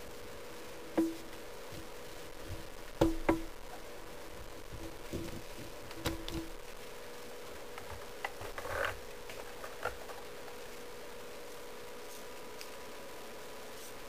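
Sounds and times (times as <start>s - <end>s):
steady low hum: 0.0s - 14.0s
plastic clicks and knocks: 4.6s - 6.6s.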